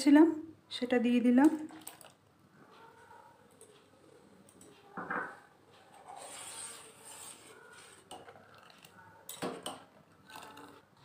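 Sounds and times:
spoon scraping metal pot: 5.9 - 10.9.

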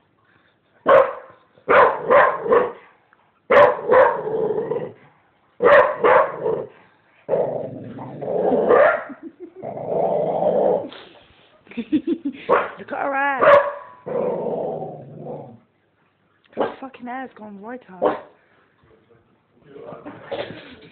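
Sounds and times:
dog barking: 0.8 - 4.2, 5.6 - 6.7, 8.7 - 9.2, 12.5 - 12.8, 13.4 - 14.1, 16.6 - 16.8, 18.0 - 18.4.

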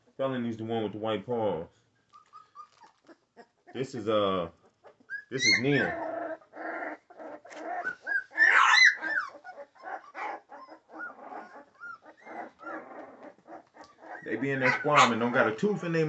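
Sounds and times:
puppies whimpering and squeaking: 2.0 - 3.8, 4.7 - 15.6.

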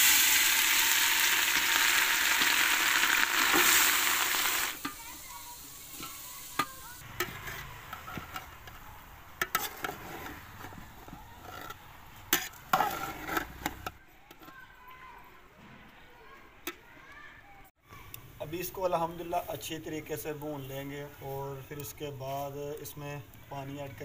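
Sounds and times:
carrots sizzling in hot fat: 0.0 - 7.0
metal spatula scraping pot: 2.3 - 8.8, 9.4 - 14.5.

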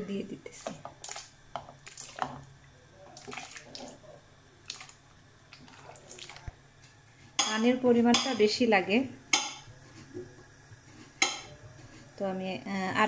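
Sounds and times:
cucumber pieces splashing into water: 3.2 - 4.0.

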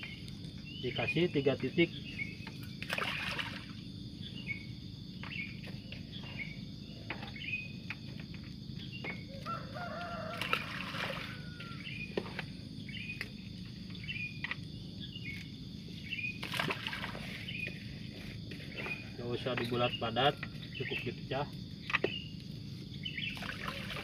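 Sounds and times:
bird chirping: 0.0 - 2.8, 4.2 - 7.9, 12.8 - 16.4, 18.5 - 24.0
low outdoor hum: 0.0 - 24.0
rooster crowing: 9.3 - 12.1.

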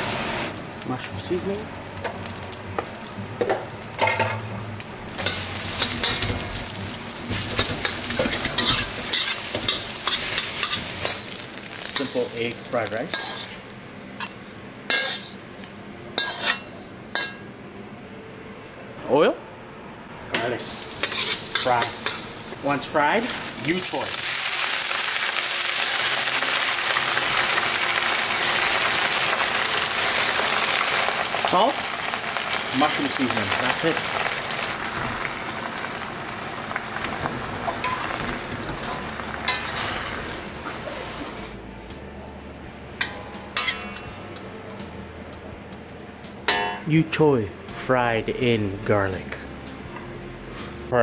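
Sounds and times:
greens sizzling in a wok: 0.0 - 15.4, 20.5 - 41.6.

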